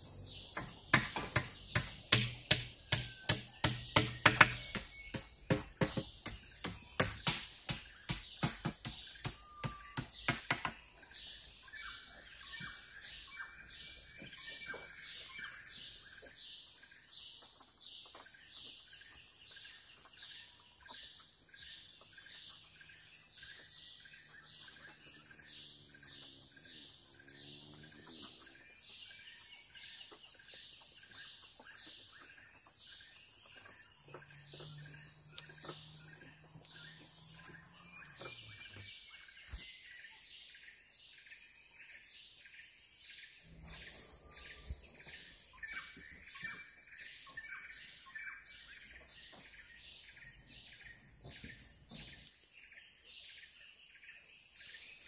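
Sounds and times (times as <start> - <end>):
birds chirping: 0.0 - 41.2, 42.2 - 53.4
sharp knocks: 0.5 - 10.8.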